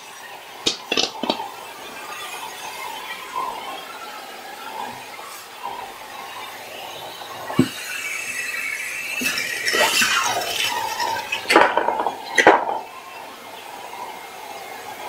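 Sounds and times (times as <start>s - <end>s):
shop vac whining: 4.7s - 13.0s.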